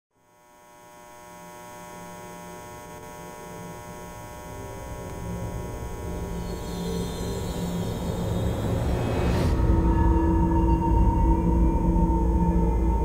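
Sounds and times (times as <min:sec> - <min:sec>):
fluorescent tube light humming: 0:00.2 - 0:08.8.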